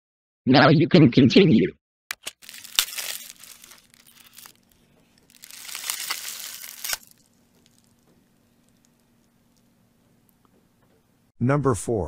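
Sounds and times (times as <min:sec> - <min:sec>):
plastic film crinkling: 0:02.1 - 0:09.7.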